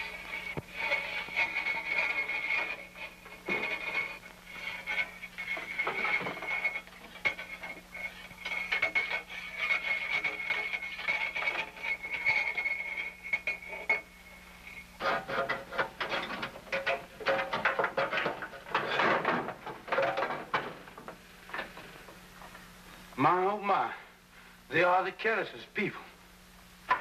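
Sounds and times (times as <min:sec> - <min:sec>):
metallic clattering: 0:00.0 - 0:22.0
knocking and rattling in pipes: 0:15.0 - 0:22.2.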